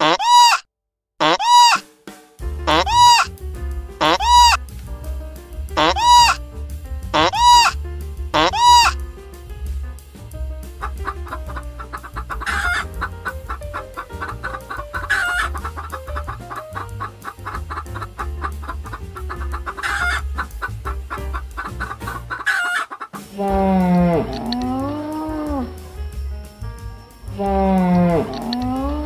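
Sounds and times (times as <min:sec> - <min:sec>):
chicken squawks: 0:00.0 - 0:01.8, 0:02.7 - 0:03.3, 0:04.0 - 0:04.6, 0:05.8 - 0:06.4, 0:07.2 - 0:07.8, 0:08.4 - 0:09.0, 0:10.8 - 0:23.4
background music with bass line: 0:02.0 - 0:29.0
chickens clucking: 0:02.7 - 0:03.3, 0:04.0 - 0:04.6, 0:05.8 - 0:06.4, 0:07.2 - 0:07.8, 0:08.4 - 0:09.0, 0:10.8 - 0:25.7, 0:27.4 - 0:29.0.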